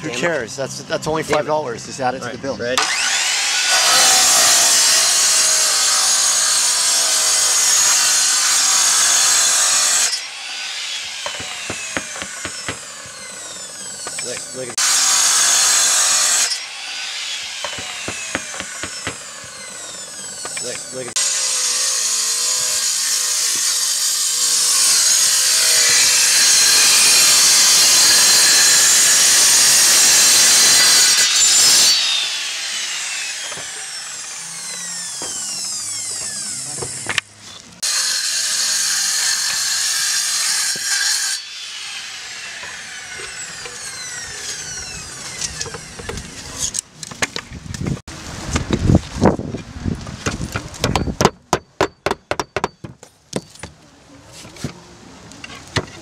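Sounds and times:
power saw cutting concrete tile: 0.0s - 46.8s
saw blade spinning down: 2.8s - 37.1s, 37.8s - 46.6s
sharp knocks: 11.2s - 13.2s, 17.6s - 19.2s, 33.4s - 33.8s.

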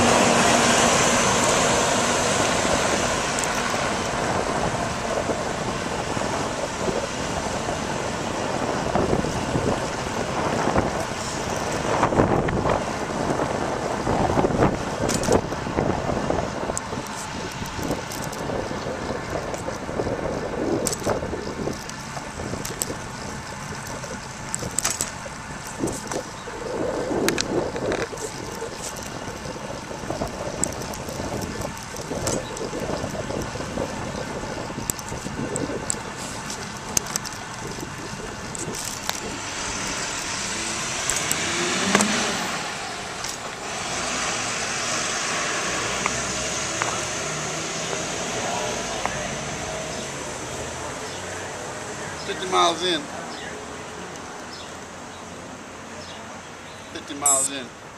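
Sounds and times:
wind rushing over microphone: 0.0s - 54.7s
vehicle passing: 0.0s - 57.8s
street traffic: 0.0s - 57.9s
bicycle clicks and rattles: 3.2s - 4.4s, 8.7s - 13.5s, 14.3s - 40.4s, 43.0s - 43.6s.

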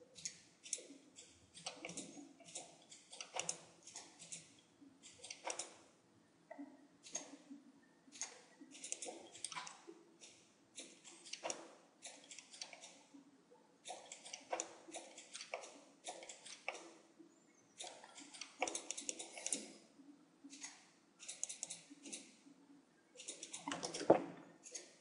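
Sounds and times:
computer mouse and keyboard clicking: 0.1s - 5.8s, 8.1s - 13.0s, 13.8s - 17.0s, 17.8s - 19.8s, 20.5s - 22.3s, 23.2s - 25.0s.

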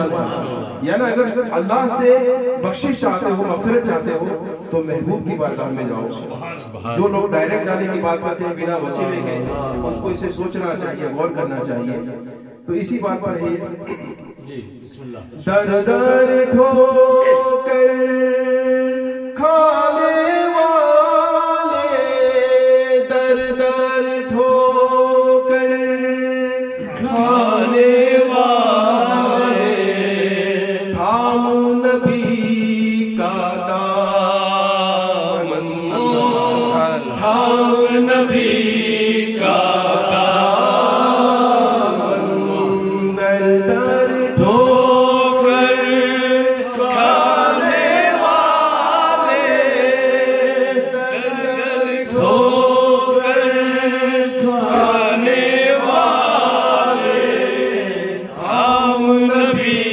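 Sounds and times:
man singing devotional song: 15.4s - 57.0s, 58.2s - 59.9s.

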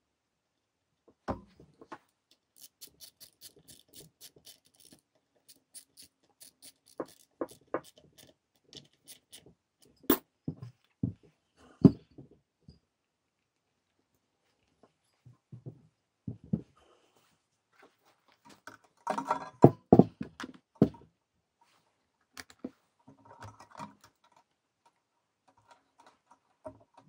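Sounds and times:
ratchet clicking: 2.3s - 9.4s
clacks of metal and plastic: 18.5s - 21.0s.

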